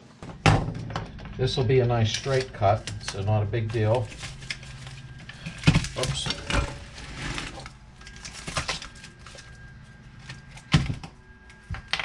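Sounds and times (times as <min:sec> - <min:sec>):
handling material on workbench: 0:01.5 - 0:11.0.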